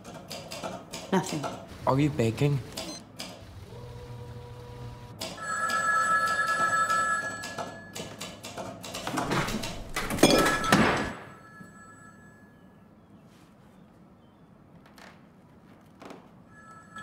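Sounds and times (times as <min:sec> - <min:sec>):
knocks and rustling: 0:08.9 - 0:11.2.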